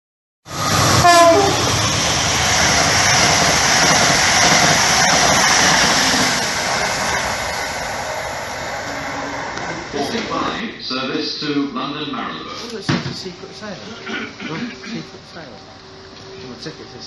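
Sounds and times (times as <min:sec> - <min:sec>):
train engine and wheels on rail: 0:00.4 - 0:10.8, 0:12.7 - 0:17.0
train horn blast: 0:00.6 - 0:01.9.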